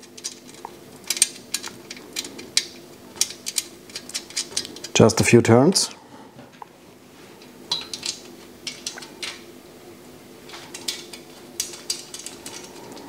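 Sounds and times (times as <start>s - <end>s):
metallic clicks of nuts and bolts: 10.7s - 13.0s.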